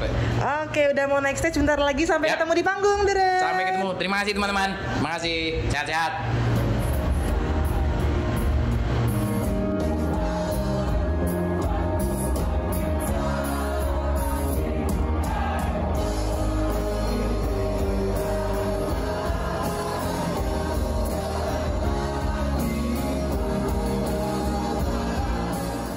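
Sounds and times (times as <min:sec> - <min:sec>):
live band playing pop-rock: 0:06.3 - 0:25.9
strong steady bass: 0:06.3 - 0:25.9
person singing: 0:16.0 - 0:25.9.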